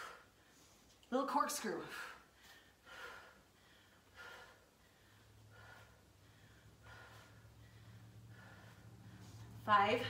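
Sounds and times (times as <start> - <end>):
faint breathing: 1.9 - 9.7.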